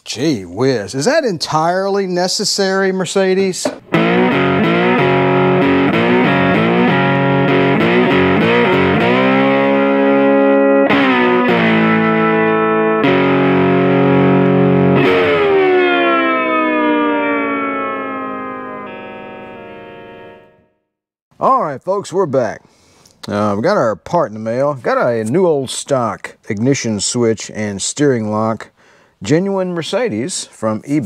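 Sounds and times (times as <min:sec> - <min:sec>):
distorted electric guitar chords: 0:03.7 - 0:20.8.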